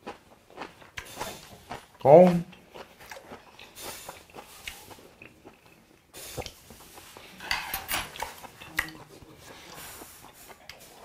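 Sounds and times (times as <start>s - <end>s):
person chewing: 0.0s - 11.0s
metal chopsticks clicking on plates: 7.4s - 9.0s.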